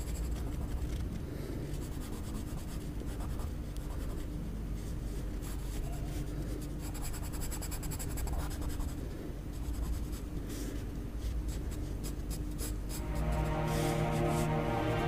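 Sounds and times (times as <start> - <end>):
pencil scratching on paper: 0.0 - 1.0, 1.8 - 4.3, 6.8 - 10.7, 11.4 - 13.0.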